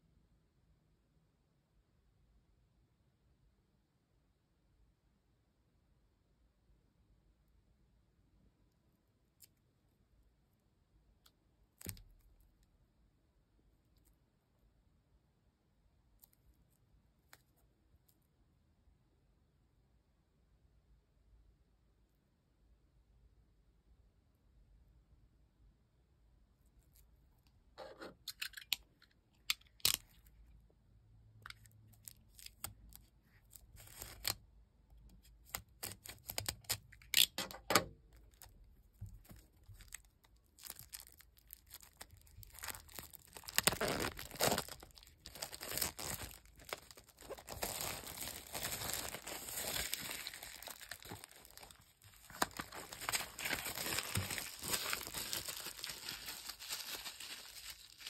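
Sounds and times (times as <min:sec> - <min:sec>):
plastic shrink wrap tearing and crinkling: 0:31.6 - 0:34.4, 0:35.4 - 0:37.6, 0:38.2 - 0:58.0.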